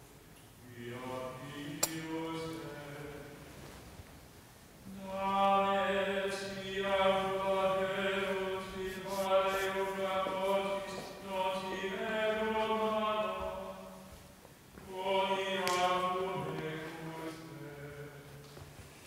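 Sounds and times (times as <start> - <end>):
slow sung chant: 0.4 - 4.0, 4.7 - 19.0.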